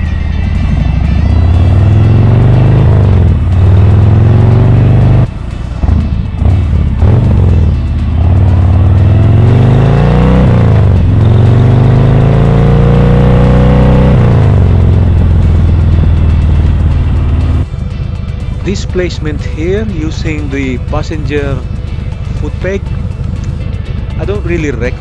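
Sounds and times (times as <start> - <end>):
motorcycle accelerating: 0.0 - 25.0.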